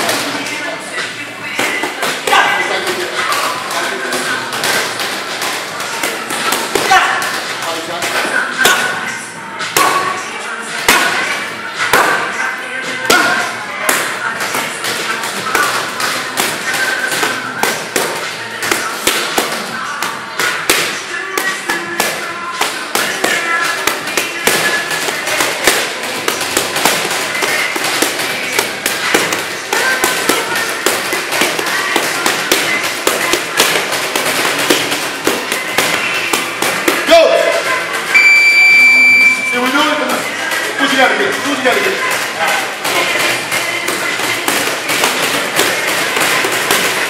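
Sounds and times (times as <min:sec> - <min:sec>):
background music: 0:00.0 - 0:47.0
boxing gloves smacking mitts: 0:10.8 - 0:12.3, 0:13.0 - 0:37.7, 0:41.6 - 0:47.0.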